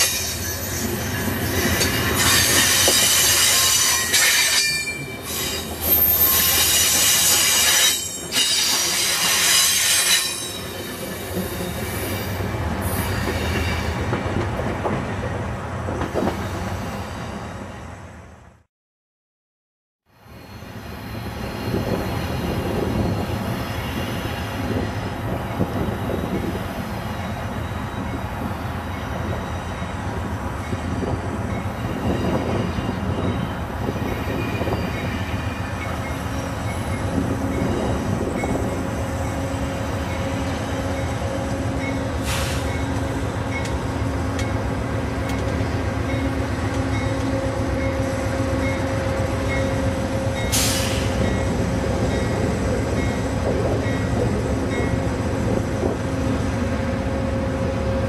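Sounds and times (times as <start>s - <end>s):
train wheels rumbling on rails: 0.0s - 17.4s, 20.5s - 58.0s
diesel locomotive engine: 20.1s - 58.0s.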